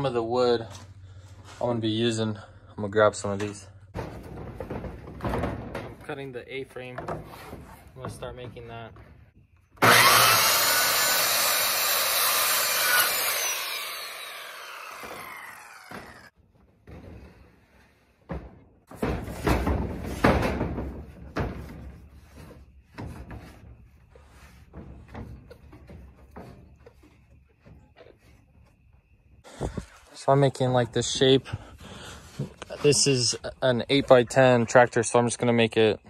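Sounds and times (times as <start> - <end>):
wood knocking and clattering: 3.9 - 9.5, 18.2 - 23.8, 24.5 - 28.4
saw blade spinning down: 9.8 - 16.3
circular saw cutting wood: 9.8 - 16.4.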